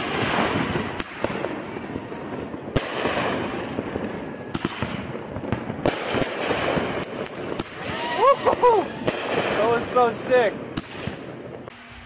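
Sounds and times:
fireworks crackling and popping: 0:00.0 - 0:12.0.

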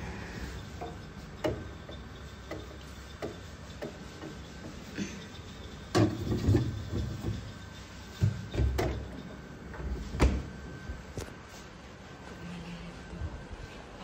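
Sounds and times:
refrigerator door shutting: 0:10.1 - 0:10.5.

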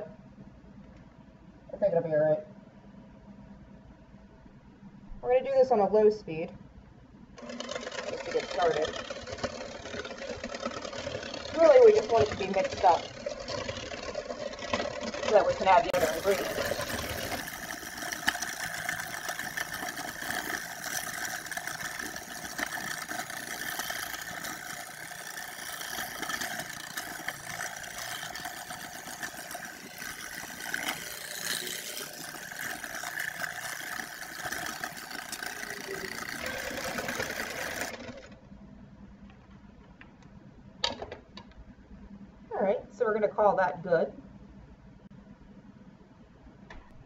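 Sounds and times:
electric hand mixer whirring: 0:07.4 - 0:38.4
mixer beaters clicking together: 0:07.4 - 0:38.4.

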